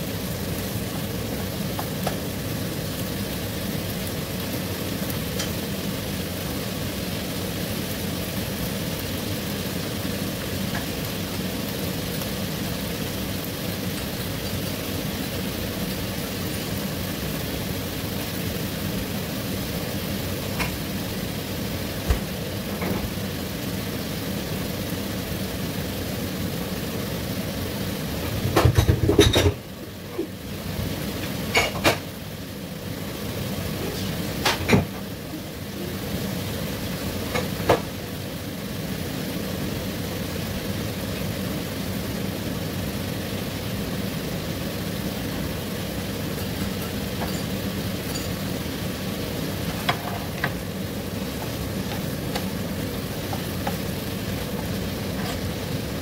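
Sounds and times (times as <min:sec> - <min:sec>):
squid sizzling in pan: 0:00.0 - 0:56.0
pan and utensil clattering: 0:28.4 - 0:29.6, 0:31.4 - 0:32.1, 0:46.3 - 0:48.4, 0:55.1 - 0:55.6.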